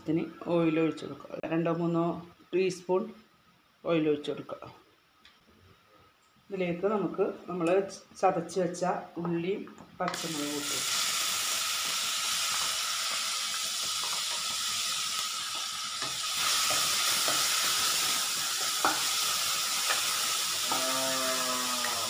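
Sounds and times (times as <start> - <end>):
food sizzling in oil: 10.1 - 22.0.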